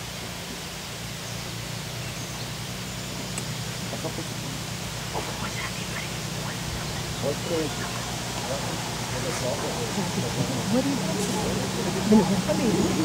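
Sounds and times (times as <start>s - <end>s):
boat motor hiss and hum: 0.0s - 13.0s
short bird calls: 2.1s - 10.5s.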